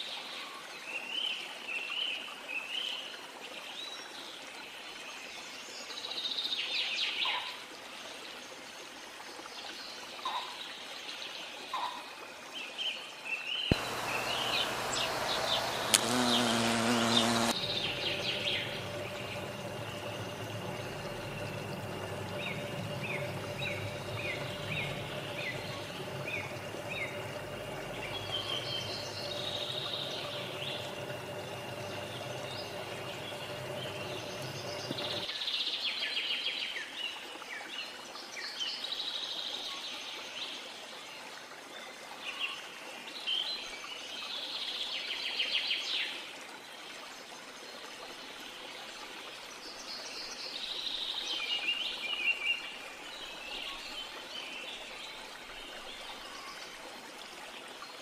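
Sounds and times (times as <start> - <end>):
steady hum: 13.7 - 35.3.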